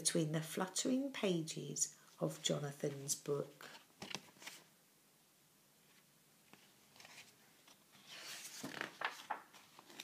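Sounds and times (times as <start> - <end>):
book pages rustling: 2.3 - 4.7, 5.9 - 10.0.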